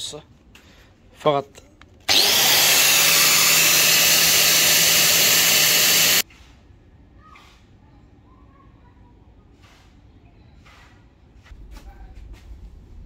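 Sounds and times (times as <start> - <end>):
angle grinder cutting metal pipe: 2.1 - 6.2.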